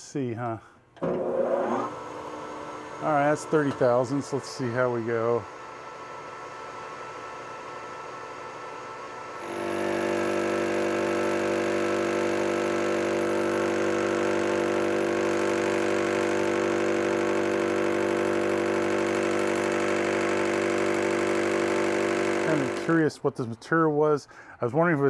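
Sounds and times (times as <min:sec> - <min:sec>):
metal lathe cutting steel: 0:02.3 - 0:05.4, 0:09.4 - 0:23.1.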